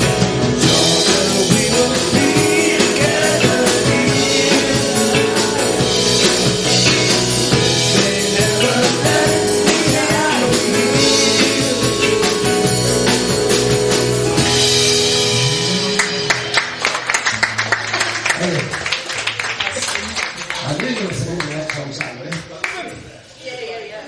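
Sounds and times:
live blues band playing: 0.0 - 20.4
woman singing: 7.9 - 12.2.

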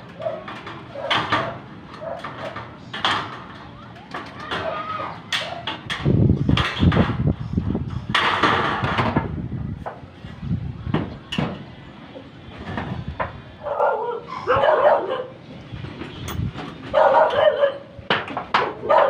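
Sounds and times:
dog barking: 13.6 - 15.4, 16.9 - 17.9.

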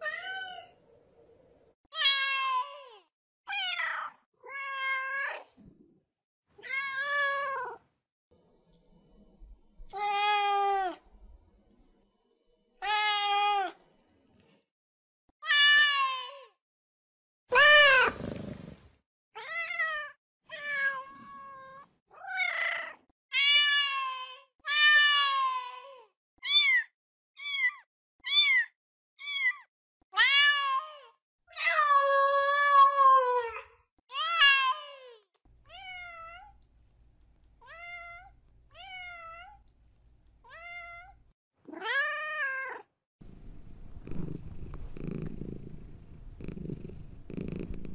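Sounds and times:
faint low hum: 43.2 - 47.9.

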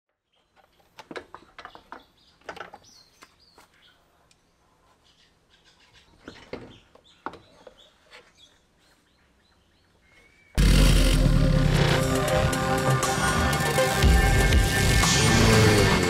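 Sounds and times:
birds chirping: 0.1 - 10.7.

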